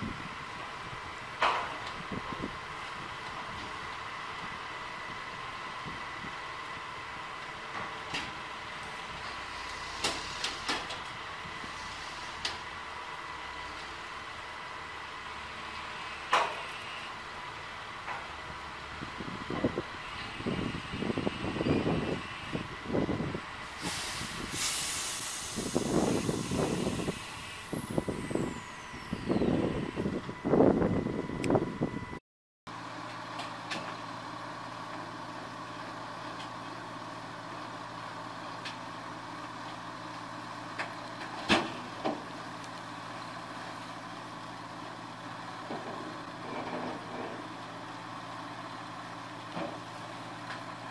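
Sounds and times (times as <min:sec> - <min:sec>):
log truck running noise: 0:00.0 - 0:50.9
air brake hiss: 0:09.5 - 0:10.7, 0:11.7 - 0:12.5, 0:23.6 - 0:29.1
thin high whine: 0:25.9 - 0:32.0.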